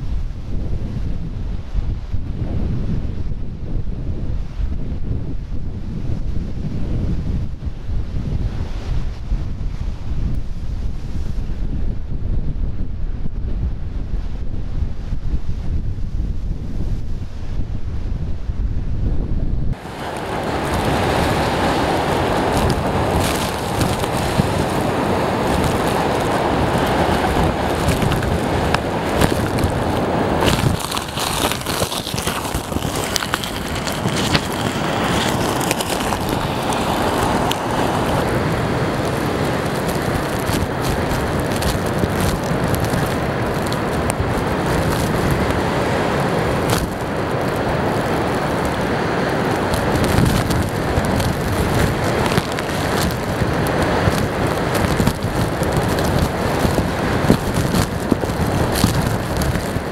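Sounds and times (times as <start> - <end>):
wind blowing across microphone: 0.0 - 59.9
waves crashing against a seawall: 19.8 - 59.9.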